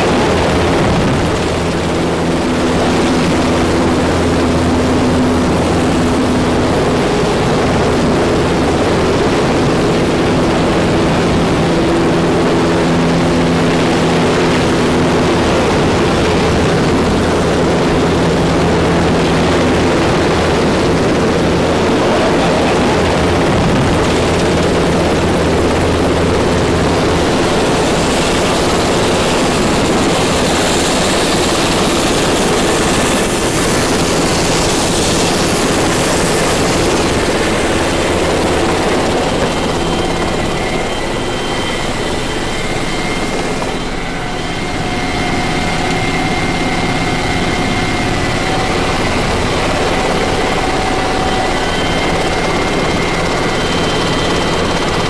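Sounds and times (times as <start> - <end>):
helicopter rotors and engines: 0.0 - 55.0
thin high whine: 13.8 - 55.0.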